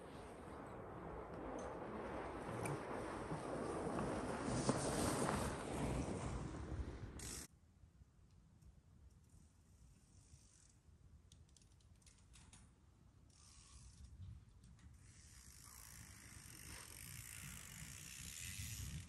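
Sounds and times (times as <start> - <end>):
tyres hissing over snow: 0.0 - 7.5
bicycle freewheel ratcheting: 7.2 - 7.5, 13.3 - 14.0, 15.0 - 19.0.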